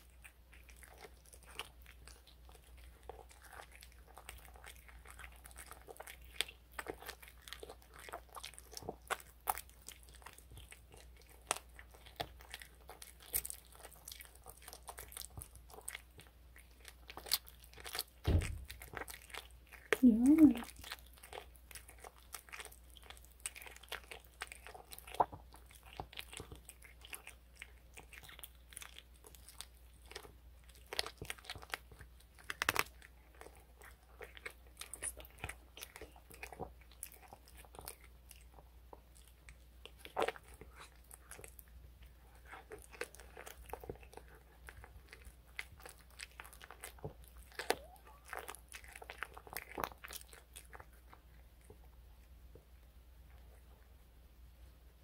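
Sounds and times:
cat crunching bones: 0:00.0 - 0:20.0, 0:20.6 - 0:52.0
wet mouth sounds: 0:17.1 - 0:21.3, 0:42.4 - 0:51.3.

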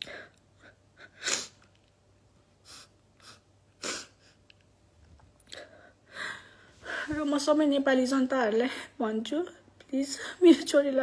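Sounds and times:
woman crying and sniffing: 0:00.6 - 0:01.7, 0:02.6 - 0:04.5.

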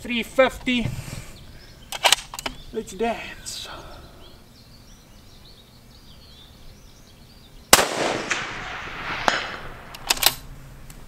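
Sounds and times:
rifle shot with echo: 0:07.7 - 0:10.4.

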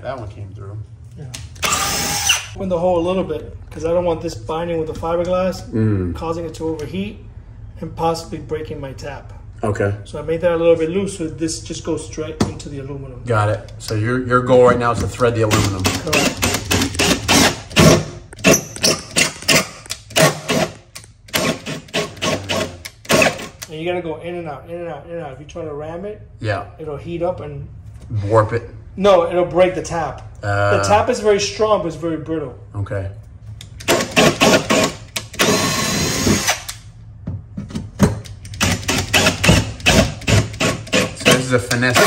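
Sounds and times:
cordless drill motor whining: 0:01.6 - 0:02.6, 0:33.9 - 0:36.8
cordless drill pulsing: 0:01.6 - 0:02.6, 0:20.2 - 0:23.6, 0:33.8 - 0:36.8, 0:38.6 - 0:41.3.

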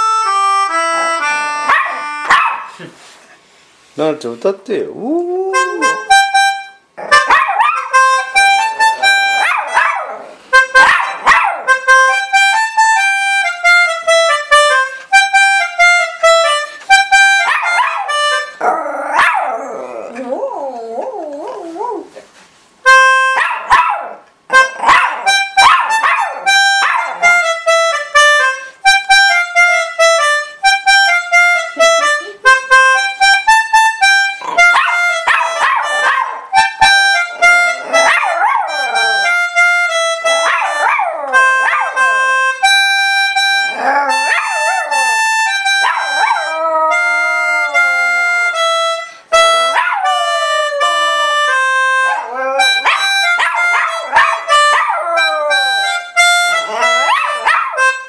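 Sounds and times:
organ playing slow melody: 0:00.0 - 0:02.3, 0:41.4 - 0:57.2
dog howling: 0:05.0 - 0:06.2, 0:18.6 - 0:22.1, 0:37.2 - 0:39.4, 0:40.4 - 0:42.2, 0:43.6 - 0:48.2, 0:52.0 - 0:55.9, 0:56.5 - 0:57.8.

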